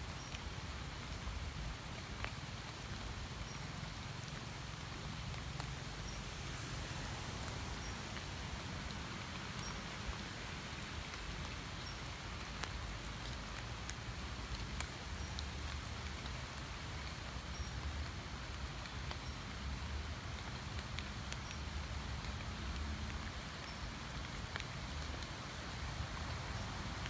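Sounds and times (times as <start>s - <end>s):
rain on water and leaves: 0.0s - 27.0s.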